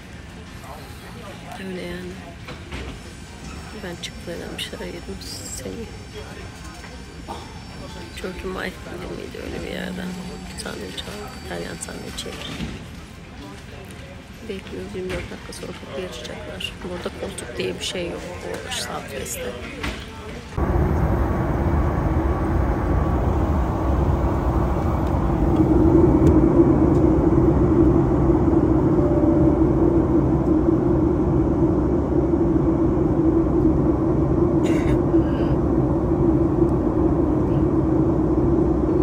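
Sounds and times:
jet cabin engine rumble: 20.6 - 39.0.

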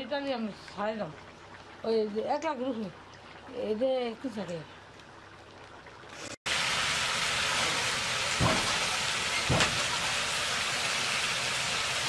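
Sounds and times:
curry bubbling and sizzling: 0.0 - 12.0.

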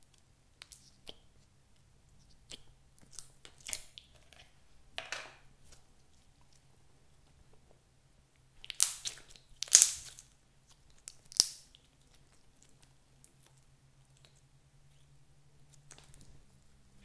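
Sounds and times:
slime squelching and crackling: 0.0 - 4.6, 8.5 - 15.1.

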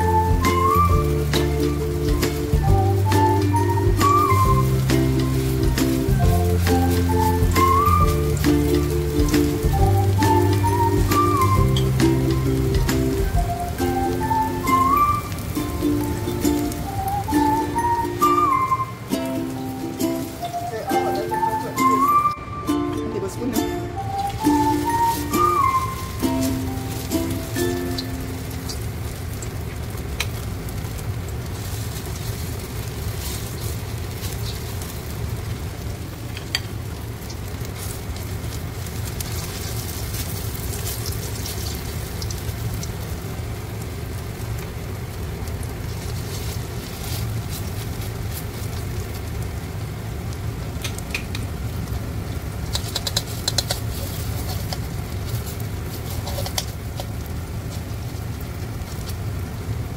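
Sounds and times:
low hum: 0.0 - 20.6
batter sizzling in hot oil: 0.0 - 21.9, 24.0 - 59.9.

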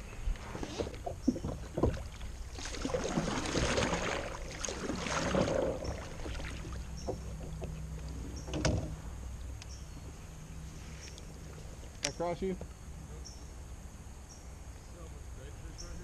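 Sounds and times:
paddle splashing through water: 0.4 - 9.2
paddle knocking against kayak: 0.8 - 9.0.

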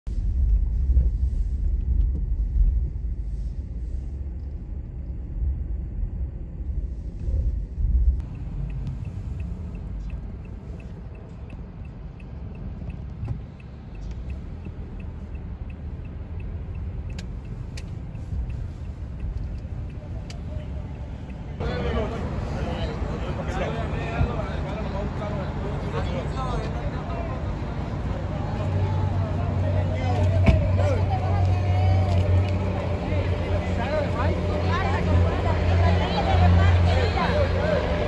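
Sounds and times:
car rumble from inside cabin: 0.1 - 38.0
faint regular ticking: 8.2 - 21.6.

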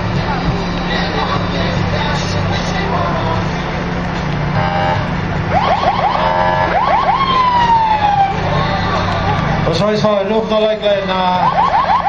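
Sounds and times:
steady low hum: 0.0 - 9.9
electronic siren whooping and wailing: 4.6 - 8.5, 11.4 - 12.0.

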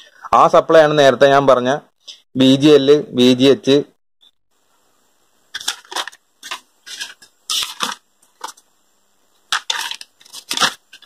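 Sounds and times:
paper pages rustling: 5.5 - 8.6, 9.5 - 11.0.

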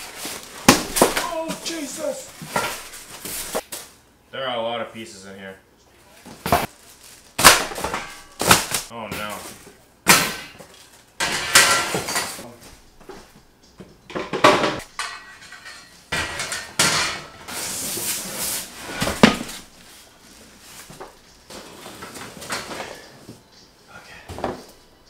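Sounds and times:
cardboard and foam rustling: 0.0 - 4.0, 6.2 - 7.8, 17.5 - 23.3.

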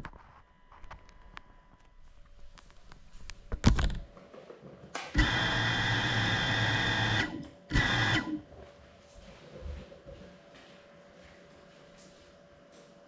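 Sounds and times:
drone motors whirring: 5.2 - 8.4.

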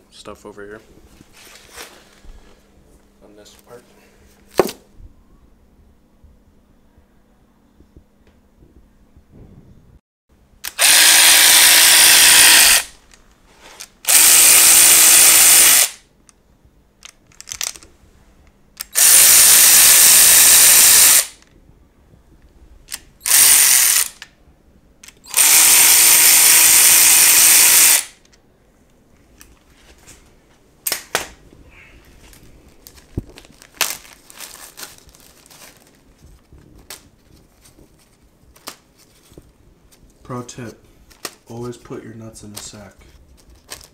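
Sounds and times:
power tool whining: 10.6 - 13.0, 14.0 - 16.0, 18.9 - 21.3, 23.2 - 24.2, 25.2 - 28.2.

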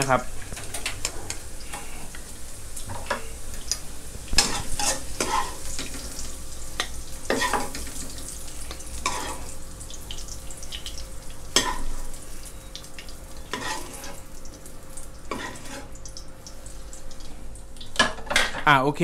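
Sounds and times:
light sizzle: 0.0 - 18.8
metal ladle scraping wok: 4.4 - 5.6, 13.5 - 14.2, 15.3 - 15.9.

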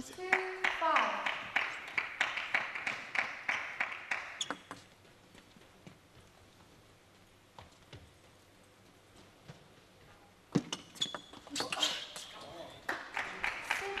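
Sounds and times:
audience applause: 0.3 - 4.4, 12.8 - 14.0.

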